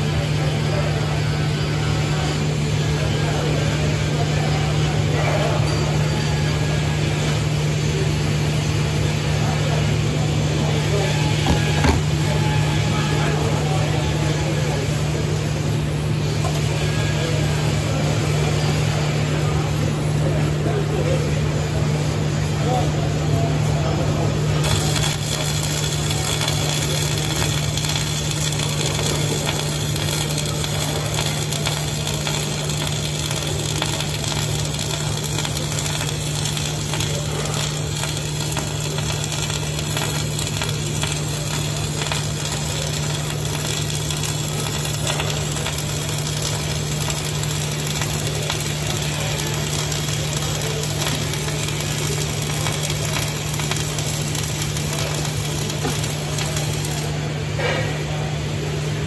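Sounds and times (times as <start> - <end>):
welding arc crackling: 24.4 - 57.3.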